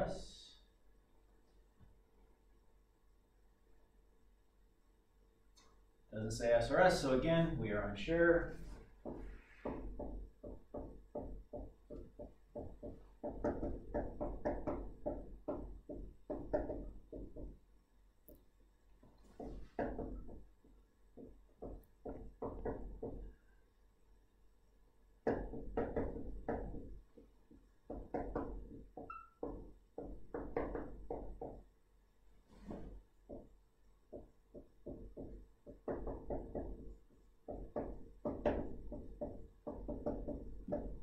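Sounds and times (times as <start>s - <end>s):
pen tapping while writing: 9.0s - 17.6s, 19.3s - 23.3s, 25.2s - 31.7s, 33.3s - 41.0s.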